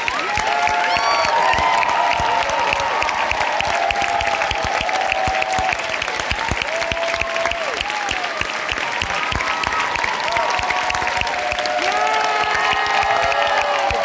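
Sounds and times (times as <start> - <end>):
audience clapping: 0.0 - 14.0
audience whooping: 0.0 - 14.0.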